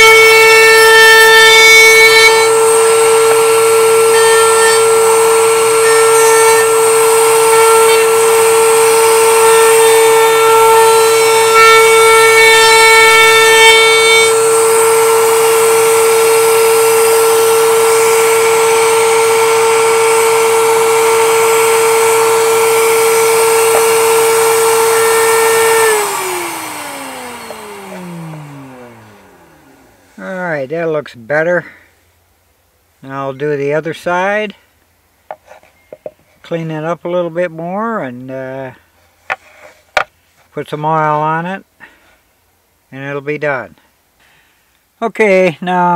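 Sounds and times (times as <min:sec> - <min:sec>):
router bit cutting wood: 0:00.0 - 0:30.1
router whining: 0:00.0 - 0:30.3.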